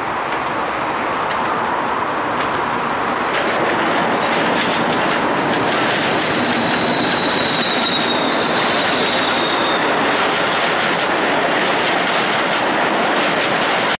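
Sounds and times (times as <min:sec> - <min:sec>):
faint high wheel squeal: 0:00.0 - 0:10.6
train wheels rumbling on rails: 0:00.0 - 0:14.0.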